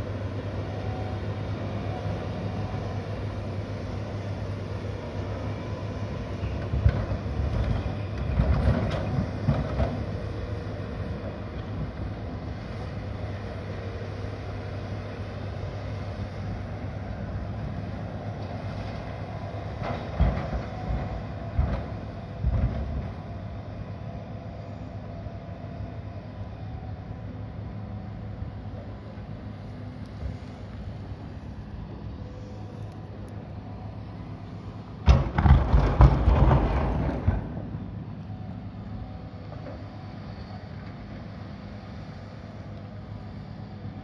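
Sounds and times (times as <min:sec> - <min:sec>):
excavator diesel engines droning: 0:00.0 - 0:44.0
excavator thuds: 0:06.6 - 0:10.2, 0:19.8 - 0:23.2, 0:35.0 - 0:38.0.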